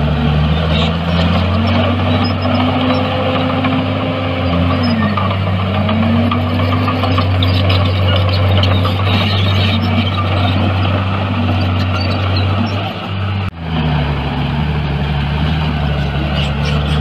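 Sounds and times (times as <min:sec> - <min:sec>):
diesel machinery engine running: 0:00.0 - 0:17.0.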